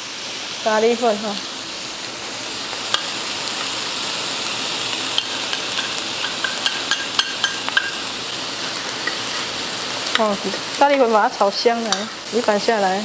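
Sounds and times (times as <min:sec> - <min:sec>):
food sizzling in a wok: 0:00.0 - 0:13.0
metal spatula clacking on wok: 0:05.2 - 0:08.0.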